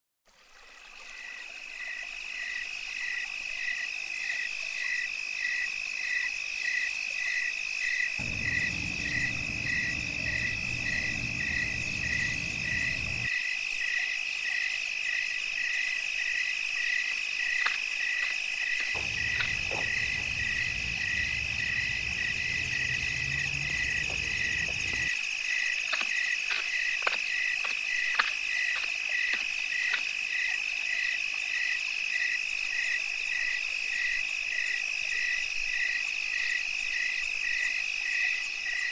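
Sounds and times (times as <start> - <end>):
pulsing insect chirp: 1.1 - 32.4
low rumble: 8.2 - 13.3, 19.0 - 25.1
insect trilling: 8.2 - 13.4, 17.4 - 30.0.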